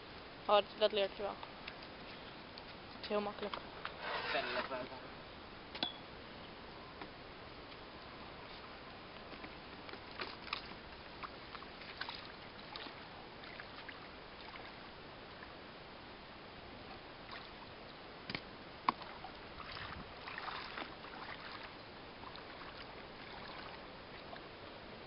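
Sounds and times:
water splashing and sloshing: 0:08.5 - 0:15.6, 0:16.8 - 0:24.6.

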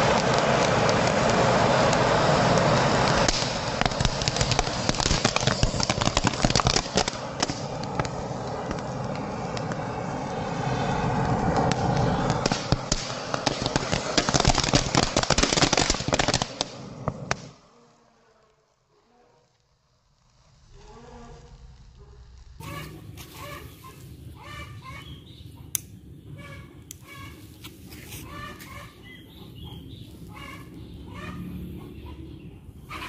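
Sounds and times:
fountain fireworks hissing and crackling: 0:00.0 - 0:24.2.

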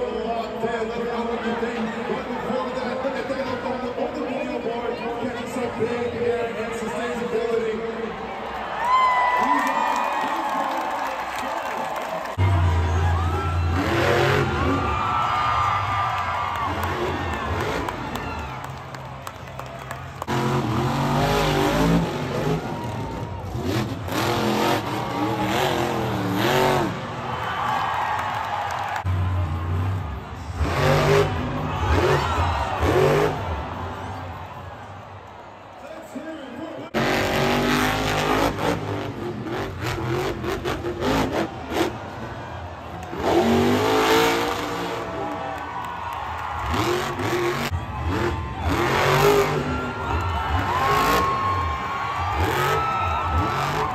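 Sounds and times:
truck engine revving hard: 0:12.4 - 0:27.7, 0:28.9 - 0:34.2, 0:36.9 - 0:45.6, 0:46.5 - 0:53.9.

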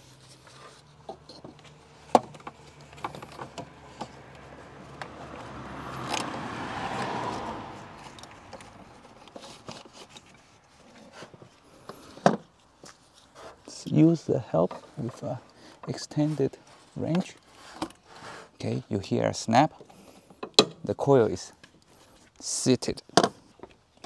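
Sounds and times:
rubbing scrape: 0:00.0 - 0:04.8, 0:07.3 - 0:12.2, 0:16.1 - 0:18.7.

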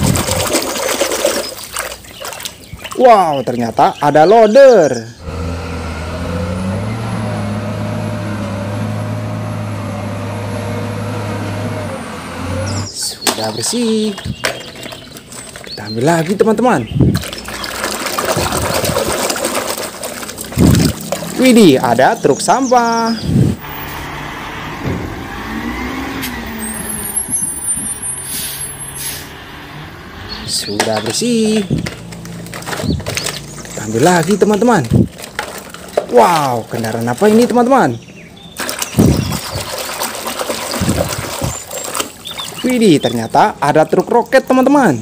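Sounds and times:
diesel engine droning under load: 0:05.1 - 0:13.0, 0:20.5 - 0:36.6
tyre noise on wet road: 0:05.2 - 0:45.0
air brake hisses: 0:28.2 - 0:29.3.

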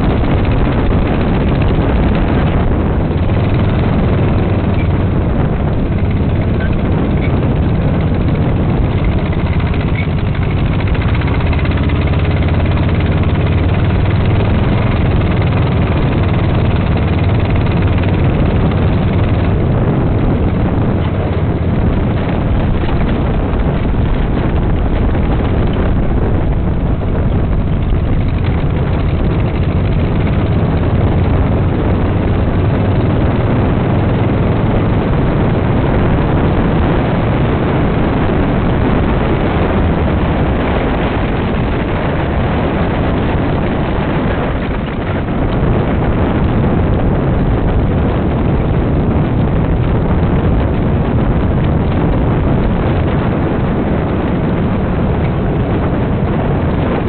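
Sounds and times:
dune buggy engine drone: 0:00.0 - 0:57.0
rushing noise: 0:00.0 - 0:57.0.

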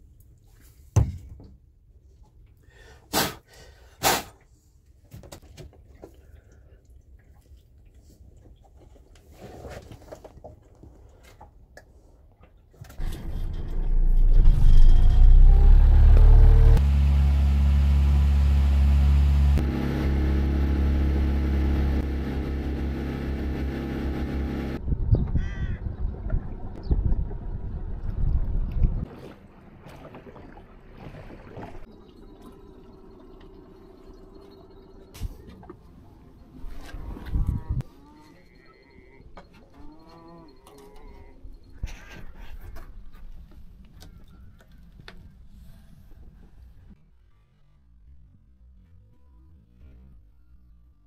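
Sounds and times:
boat motor running: 0:15.2 - 0:24.8.

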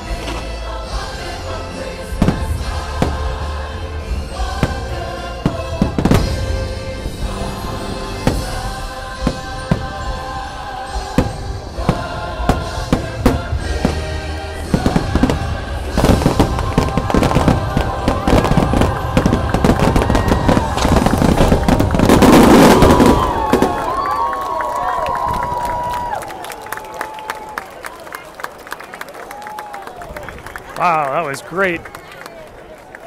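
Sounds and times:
music: 0:00.0 - 0:23.6
fireworks bangs and crackle: 0:00.0 - 0:26.2.

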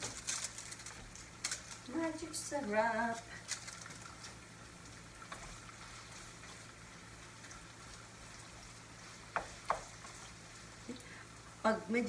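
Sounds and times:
spatula stirring in a pan: 0:00.0 - 0:11.4
food sizzling in a frying pan: 0:00.0 - 0:12.0
spatula knocking against pan: 0:09.3 - 0:10.0.

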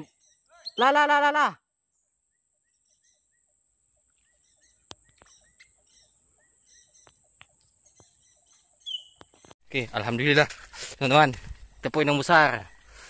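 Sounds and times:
faint bird chirps: 0:00.0 - 0:01.0, 0:01.9 - 0:09.6
whistled bird note: 0:08.8 - 0:09.3.

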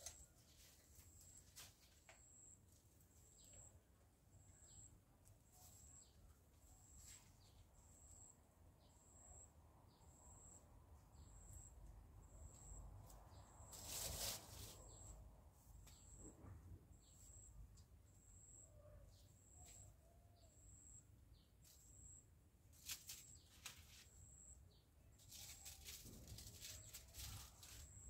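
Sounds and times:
brief rustle: 0:22.8 - 0:24.1.

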